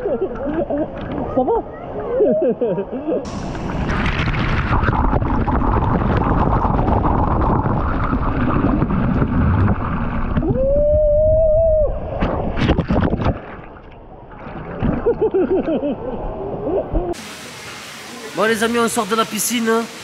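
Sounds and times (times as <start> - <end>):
water rushing and spraying: 3.3 - 10.6, 16.9 - 20.0
water splashes: 3.3 - 10.6, 12.1 - 15.8, 16.9 - 20.0.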